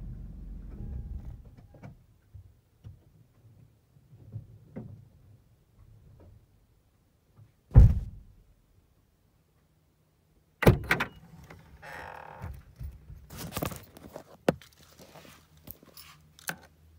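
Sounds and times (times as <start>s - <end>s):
heavy thump: 7.7s - 8.3s.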